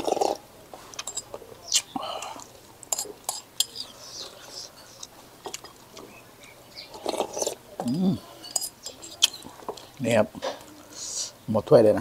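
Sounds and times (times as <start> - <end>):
mouth sounds of eating: 0.0 - 11.4
person humming: 7.8 - 8.3
metal spoon scraping ceramic bowl: 8.4 - 9.9.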